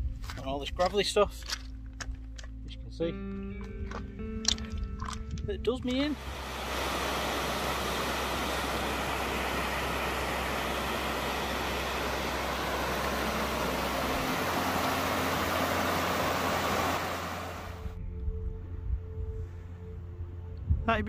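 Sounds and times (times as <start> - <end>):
waterfall and beck rushing: 6.2 - 17.9.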